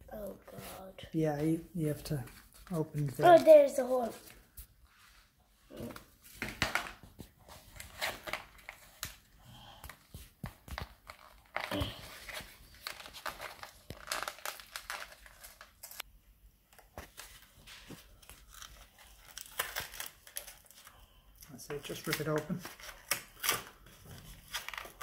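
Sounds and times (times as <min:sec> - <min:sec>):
paper wrapper tearing and crinkling: 0:02.4 - 0:04.4, 0:10.6 - 0:16.1, 0:16.7 - 0:21.0, 0:21.8 - 0:25.0.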